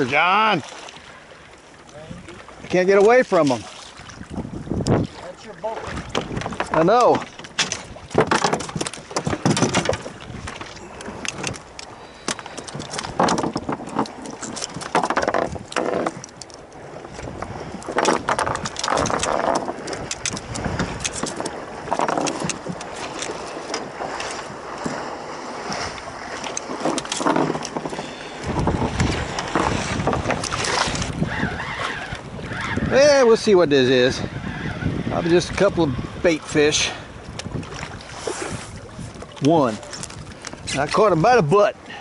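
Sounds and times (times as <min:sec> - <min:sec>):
water splashing against boat hull: 0:00.0 - 0:42.0
wind rumble on microphone: 0:03.6 - 0:42.0
knocks and rattles on deck: 0:06.1 - 0:10.2, 0:12.8 - 0:16.2.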